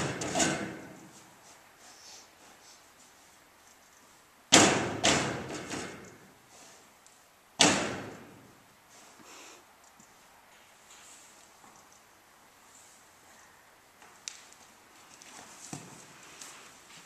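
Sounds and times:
hoof banging on trailer ramp: 0.0s - 1.1s, 4.5s - 6.2s, 7.6s - 8.5s.

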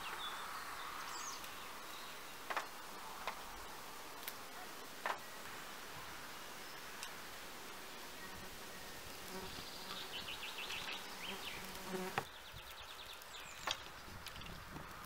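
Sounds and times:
bee buzzing: 2.1s - 12.3s.

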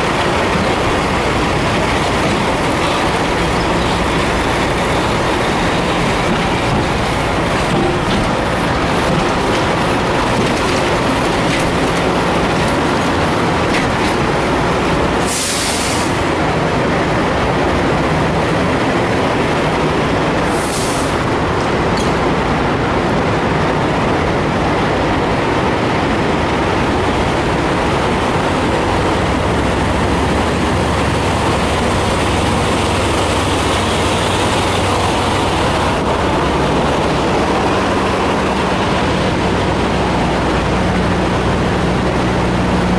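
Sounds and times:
loud steady rumbling: 0.0s - 42.9s.

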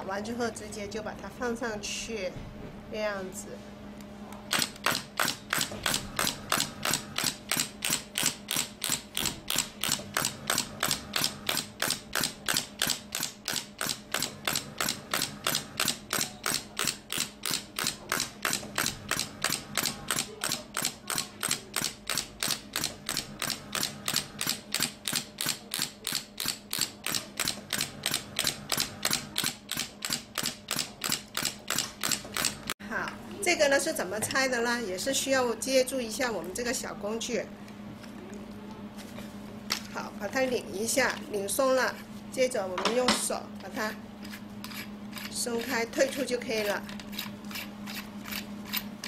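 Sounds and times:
steady low hum: 0.0s - 49.0s
sharp pneumatic clicks: 4.5s - 32.8s.

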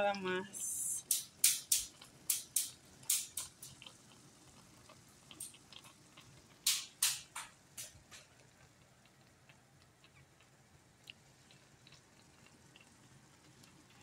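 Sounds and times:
stew bubbling and popping: 0.0s - 14.0s.

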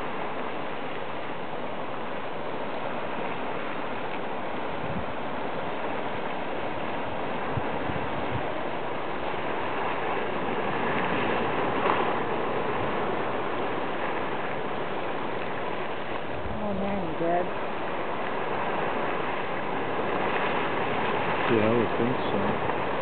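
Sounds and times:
boiling water churning and rushing: 0.0s - 23.0s.

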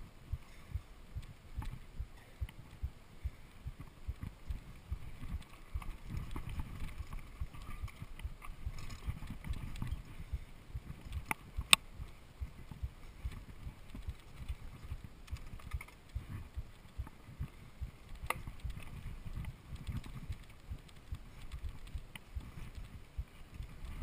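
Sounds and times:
mountain bike rattling over dirt: 3.8s - 24.0s
sharp clicks: 13.3s - 17.1s, 18.1s - 23.0s.

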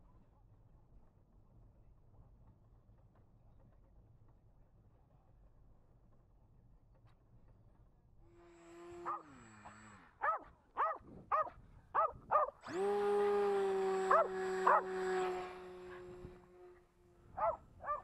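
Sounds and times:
electric motor and propeller whine: 8.2s - 18.0s
dog barking excitedly: 10.2s - 12.6s, 14.1s - 14.9s, 17.4s - 18.0s.

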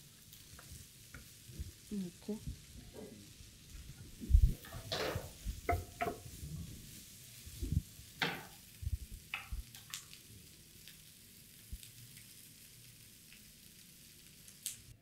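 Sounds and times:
faint sizzle: 0.0s - 15.0s
wooden spoon scraping a pan: 2.6s - 9.6s.

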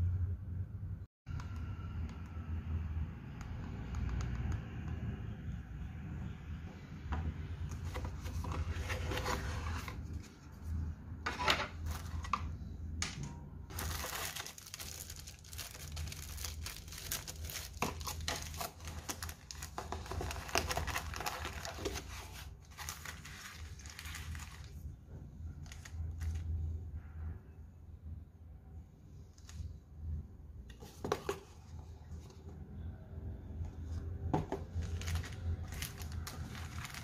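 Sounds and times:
plastic packaging crinkling: 13.7s - 24.8s, 34.7s - 37.0s.

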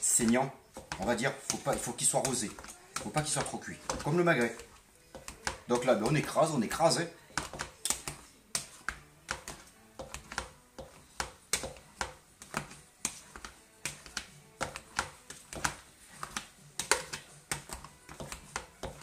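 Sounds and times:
potato squelching: 0.0s - 19.0s.

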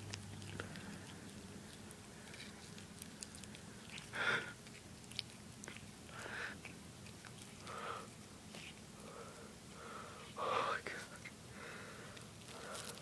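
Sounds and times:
cat chewing string: 0.0s - 9.2s.

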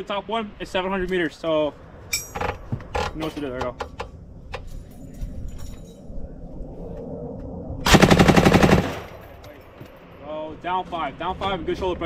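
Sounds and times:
machine gun firing burst: 7.9s - 9.2s.

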